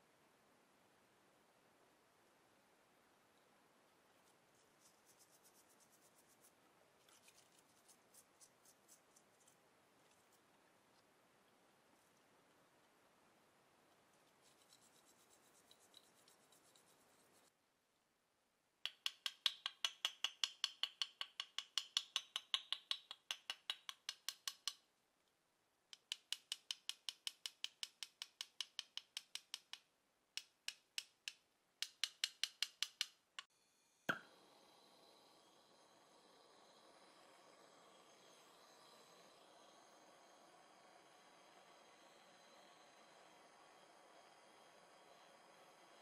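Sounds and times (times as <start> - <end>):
gas torch lighting with a pop: 34.1 - 34.4.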